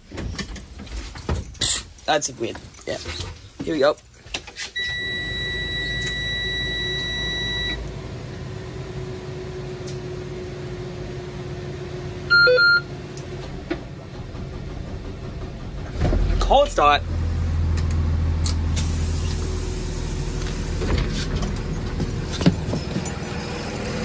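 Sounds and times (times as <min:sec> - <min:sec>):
dashboard warning buzzer: 0:12.3 - 0:12.9.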